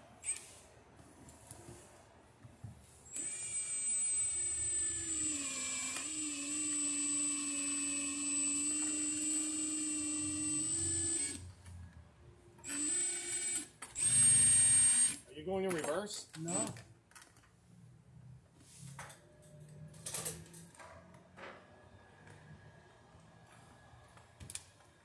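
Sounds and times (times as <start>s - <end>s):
power drill motor whining: 3.1s - 11.5s, 12.6s - 15.2s.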